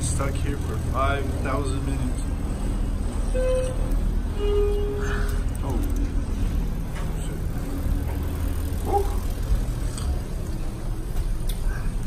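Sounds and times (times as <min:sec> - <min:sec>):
ship interior low rumble: 0:00.0 - 0:12.0.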